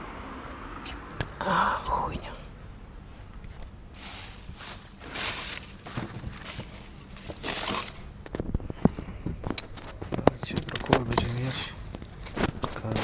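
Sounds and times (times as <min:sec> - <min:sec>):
plastic bags and paper rustling: 0:04.0 - 0:13.0.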